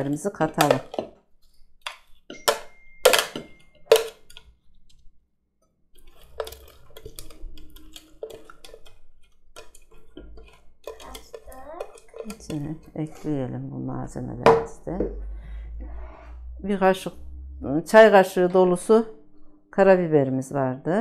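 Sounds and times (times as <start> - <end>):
metal spoon scraping plastic bowl: 5.9 - 14.2.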